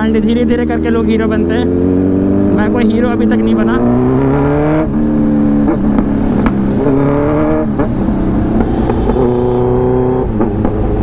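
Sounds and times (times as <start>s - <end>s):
motorcycle engine accelerating: 0.0s - 11.0s
sharp exhaust pops: 8.5s - 9.4s.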